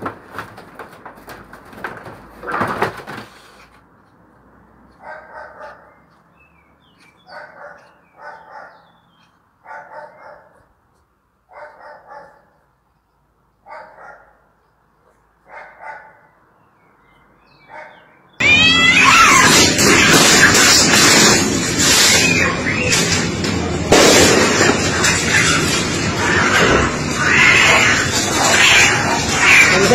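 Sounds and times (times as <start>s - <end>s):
cats yowling: 18.4s - 23.2s, 24.5s - 29.9s
loud burst with rising squeals: 18.4s - 29.9s.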